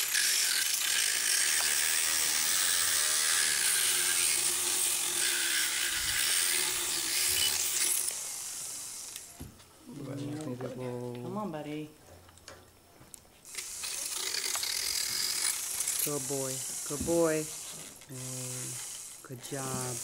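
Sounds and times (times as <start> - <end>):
dental power float grinding: 0.0 - 9.3, 13.5 - 20.0.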